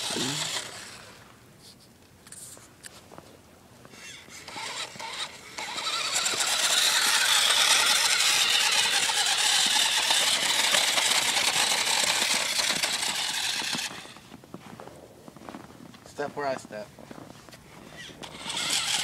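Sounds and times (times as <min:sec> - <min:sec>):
remote-control car motor whining: 0:00.0 - 0:01.2, 0:03.9 - 0:14.3, 0:17.8 - 0:19.0.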